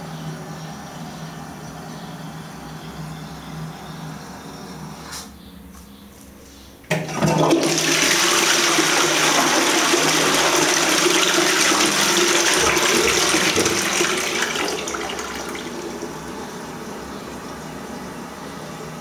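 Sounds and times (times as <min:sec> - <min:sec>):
toilet flushing: 0:06.9 - 0:18.4.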